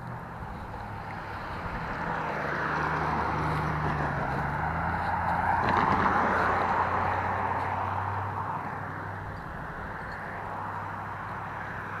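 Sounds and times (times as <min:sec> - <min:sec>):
pickup truck driving past: 0:00.6 - 0:09.8.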